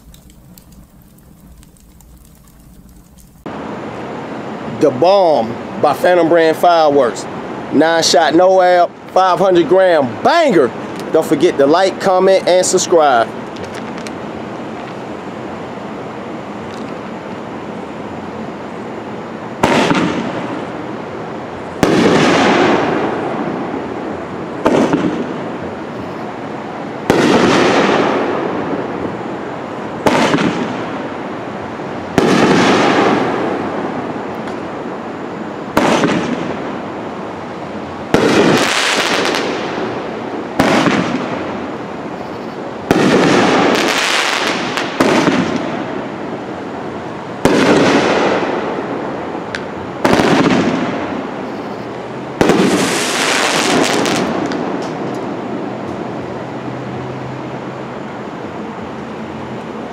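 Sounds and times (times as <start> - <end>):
firework bangs: 19.6 - 20.7, 21.8 - 24.0, 24.6 - 25.6, 27.0 - 29.0, 30.0 - 31.1, 32.1 - 34.7, 35.7 - 36.8, 38.1 - 41.8, 42.8 - 46.2, 47.4 - 49.2, 50.0 - 51.4, 52.4 - 55.6.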